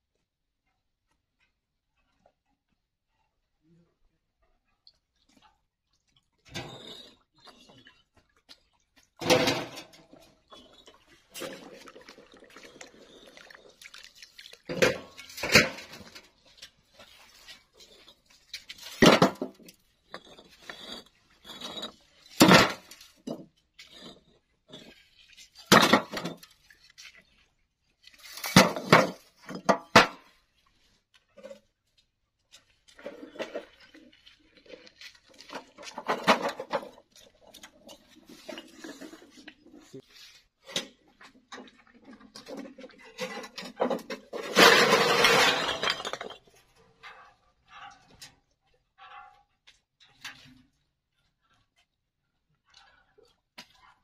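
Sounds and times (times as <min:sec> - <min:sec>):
brick hitting metal wheelbarrow: 0:18.9 - 0:19.7, 0:22.4 - 0:23.4, 0:25.7 - 0:26.4, 0:28.5 - 0:30.3, 0:43.6 - 0:46.4
bricks clinking together: 0:43.4 - 0:46.5.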